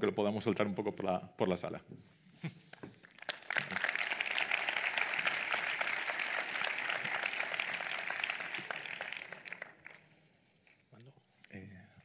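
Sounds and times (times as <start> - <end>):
audience applauding: 3.1 - 10.2.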